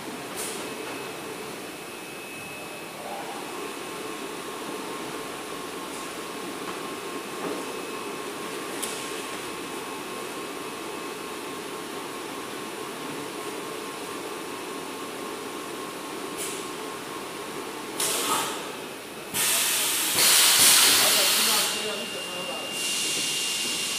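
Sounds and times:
vacuum forming machine droning: 0:00.0 - 0:23.9
loud burst of hissing air: 0:19.4 - 0:21.8.

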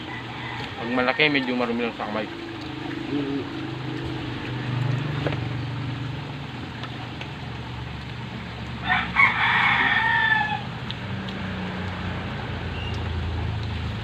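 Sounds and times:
rooster crowing: 0:00.0 - 0:01.8, 0:08.8 - 0:10.8
steady low hum: 0:00.0 - 0:09.2.

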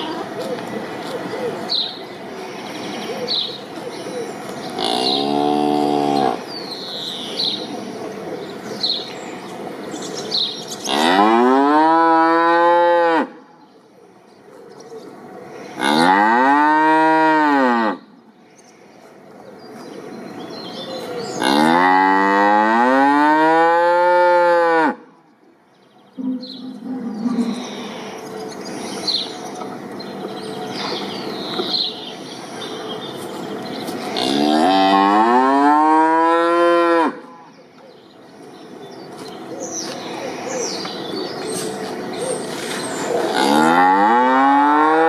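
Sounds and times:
small birds chirping: 0:00.0 - 0:11.2, 0:18.1 - 0:21.7, 0:25.2 - 0:34.8, 0:37.5 - 0:43.7
cow mooing: 0:04.8 - 0:06.5, 0:10.9 - 0:13.3, 0:15.8 - 0:18.0, 0:21.4 - 0:25.0, 0:34.1 - 0:37.2, 0:43.3 - 0:45.0.

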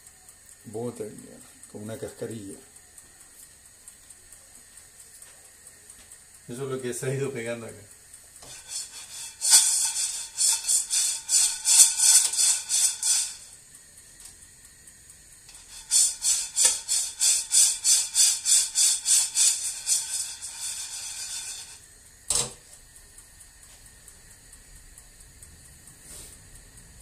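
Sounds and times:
coffee beans rattling in a pan: 0:06.4 - 0:23.2.

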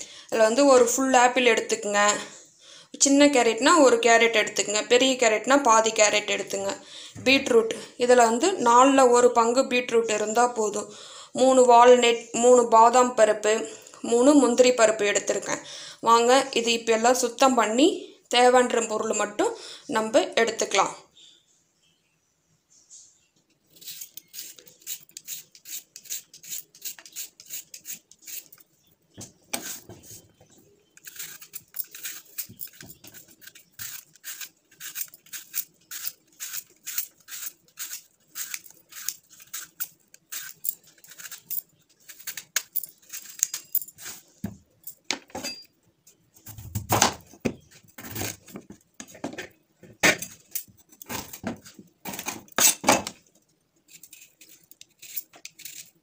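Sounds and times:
peeler scraping vegetable skin: 0:23.7 - 0:28.7, 0:29.5 - 0:30.2, 0:31.0 - 0:44.3, 0:47.9 - 0:48.5, 0:53.9 - 0:56.0.

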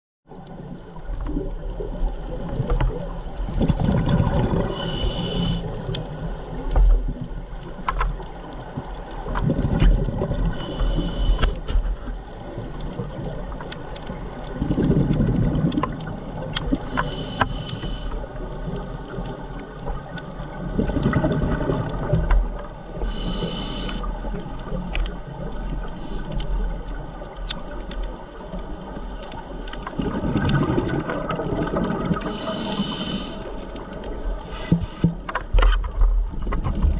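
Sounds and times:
exhaled bubbles rumbling: 0:00.3 - 0:17.2, 0:18.2 - 0:36.9
diver breathing through regulator: 0:04.6 - 0:05.8, 0:10.5 - 0:11.6, 0:16.9 - 0:18.2, 0:23.0 - 0:24.1, 0:32.2 - 0:33.7, 0:34.4 - 0:35.3
regulator hiss with faint whistle: 0:04.8 - 0:05.6.

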